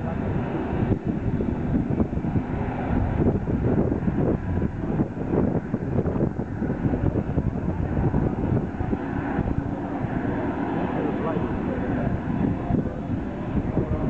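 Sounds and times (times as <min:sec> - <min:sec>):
propeller aircraft engines running: 0:00.0 - 0:14.0
wind buffeting microphone: 0:00.0 - 0:14.0.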